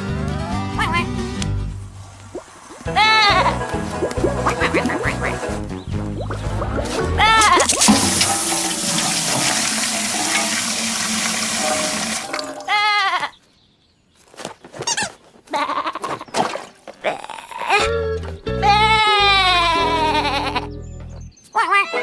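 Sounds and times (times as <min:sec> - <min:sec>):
water rushing and splashing: 0:01.8 - 0:12.8
lamb bleating: 0:18.6 - 0:20.7.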